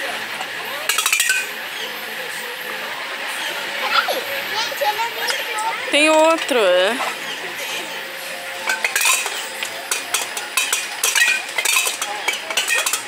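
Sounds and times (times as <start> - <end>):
metal pipes struck with sticks: 8.6 - 13.0.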